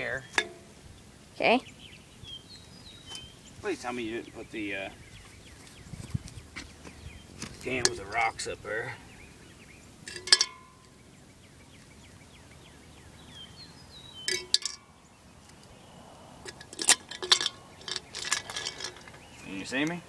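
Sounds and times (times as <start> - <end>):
cans and rocks clinking: 7.6 - 8.2, 10.0 - 11.0, 14.3 - 14.9, 16.4 - 19.3.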